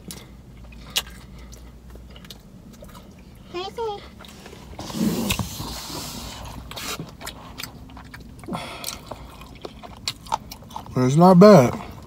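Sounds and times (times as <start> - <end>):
chewing crunchy food: 0.0 - 12.0.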